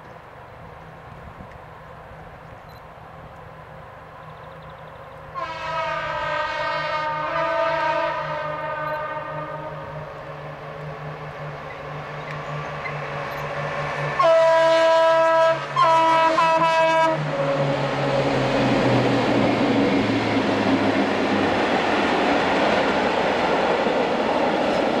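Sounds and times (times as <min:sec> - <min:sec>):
diesel locomotive engine drone: 0:00.0 - 0:25.0
train horn blasts: 0:05.3 - 0:11.0, 0:13.9 - 0:18.1
freight wagons rumbling past: 0:16.8 - 0:25.0.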